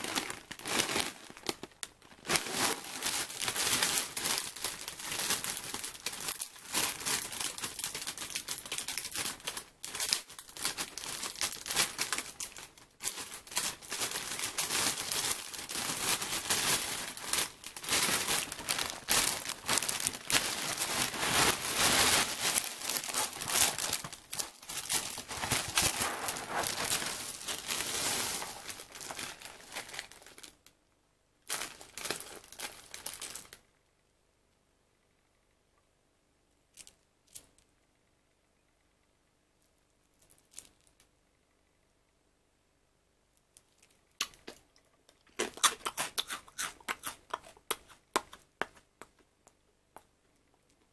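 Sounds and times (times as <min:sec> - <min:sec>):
plastic bag crinkling: 0:00.0 - 0:30.7, 0:31.5 - 0:33.6.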